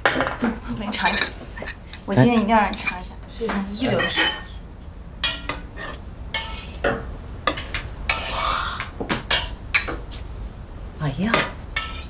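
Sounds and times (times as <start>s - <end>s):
tableware clinking against dishes: 0.0s - 4.6s, 5.2s - 8.3s, 9.0s - 10.0s, 11.3s - 12.0s.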